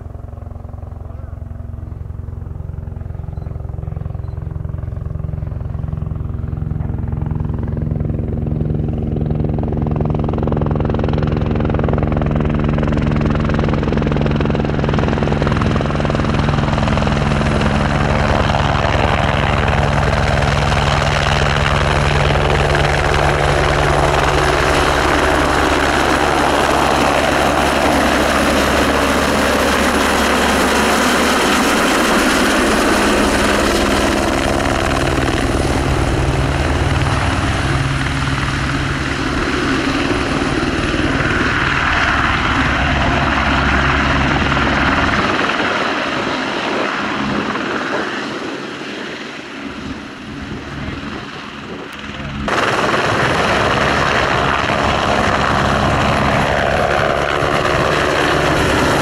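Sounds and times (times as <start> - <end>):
helicopter engine whining: 0.0 - 59.0
main rotor beating: 14.1 - 46.1.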